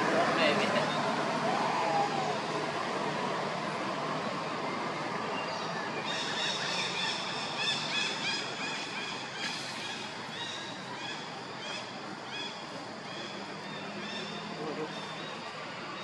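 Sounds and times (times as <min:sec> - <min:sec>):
outdoor background hiss: 0:00.0 - 0:16.0
birds chirping: 0:05.2 - 0:16.0.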